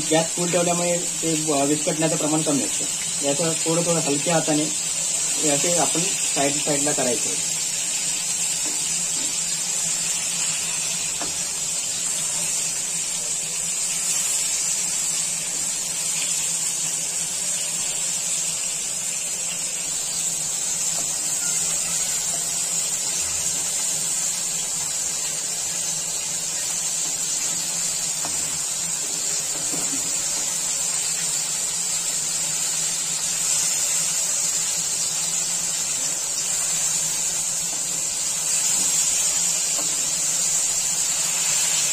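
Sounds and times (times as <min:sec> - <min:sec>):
fish sizzling in hot oil: 0:00.0 - 0:41.9.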